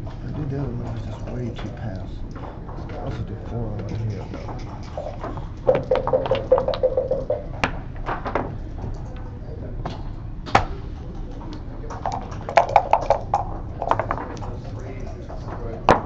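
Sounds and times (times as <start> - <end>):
game pieces clicking on board: 11.9 - 14.4.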